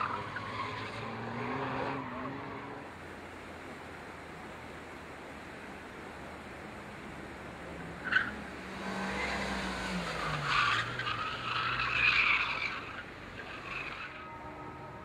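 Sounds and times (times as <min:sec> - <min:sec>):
car engine revs falling: 0:00.0 - 0:03.0, 0:08.0 - 0:14.3
tyres squealing: 0:08.0 - 0:14.9.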